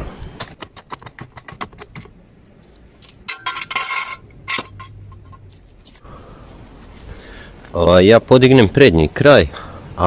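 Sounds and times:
jacks clinking and rattling: 3.0 - 5.5.

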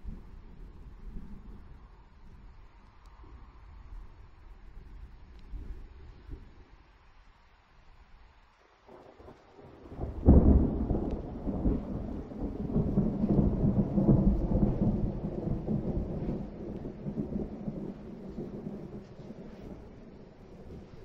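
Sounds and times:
thunder crack and rumble: 9.2 - 21.0.

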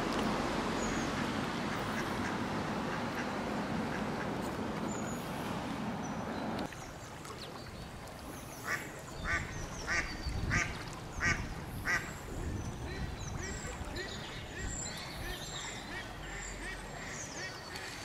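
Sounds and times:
ducks quacking: 8.6 - 12.1, 12.8 - 18.0.

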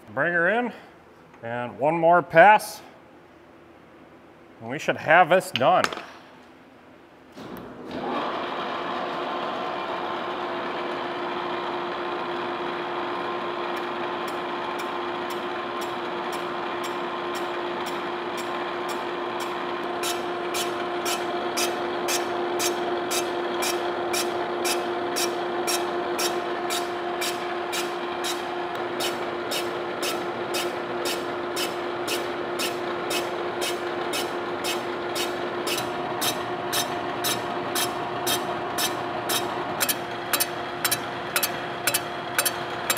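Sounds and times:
machine gear and motor hum: 22.8 - 42.9
sharp ticking of cutter: 29.0 - 42.9.

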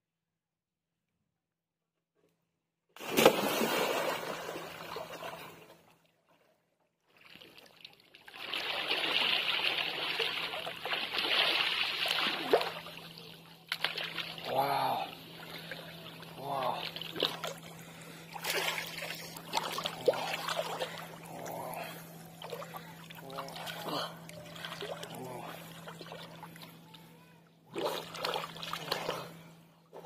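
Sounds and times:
loud splash into water: 3.0 - 4.9
splashing and churning water: 3.0 - 5.8, 7.1 - 26.8, 27.7 - 30.0
man exclaiming: 14.4 - 15.2.

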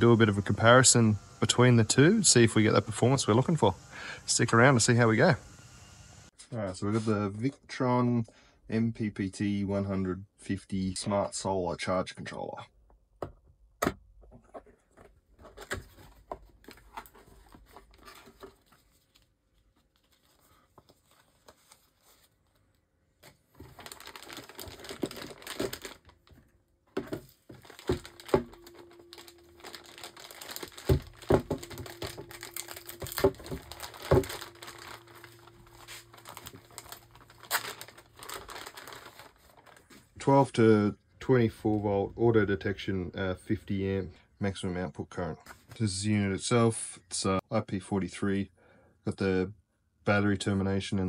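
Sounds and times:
cardboard packaging handled: 14.4 - 40.1
plastic bag crinkling: 16.8 - 40.1.

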